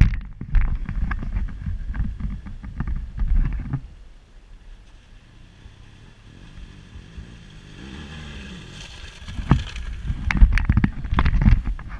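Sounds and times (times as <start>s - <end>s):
water spraying from wheels: 4.8s - 10.2s
motorcycle engine: 4.8s - 11.5s.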